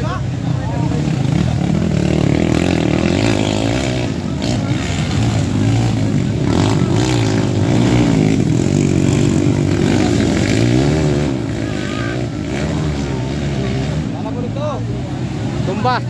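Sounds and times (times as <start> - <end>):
dirt bikes revving: 0.0 - 16.0.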